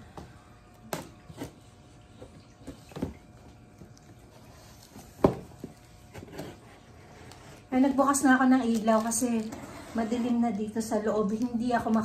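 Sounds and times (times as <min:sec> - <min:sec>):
scrapes and knocks on cardboard: 0:04.9 - 0:06.9.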